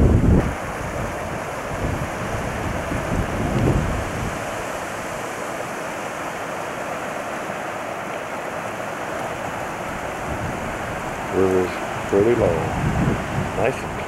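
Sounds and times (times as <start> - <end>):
wind buffeting microphone: 0.0 - 5.8, 8.7 - 14.0
river rushing over rocks: 0.0 - 14.0.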